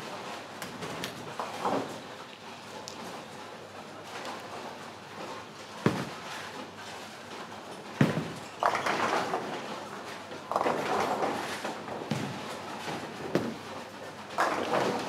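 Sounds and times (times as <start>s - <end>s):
bowling pins clattering: 7.8s - 15.0s
bowling balls thudding onto lane: 8.0s - 9.8s, 10.4s - 13.7s, 14.3s - 15.0s.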